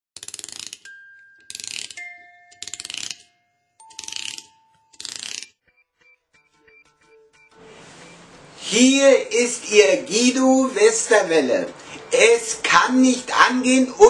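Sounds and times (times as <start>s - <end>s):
ratchet-like clicking bursts: 0.2s - 0.9s, 1.5s - 3.3s, 3.9s - 5.5s
ringing tone: 0.9s - 5.0s.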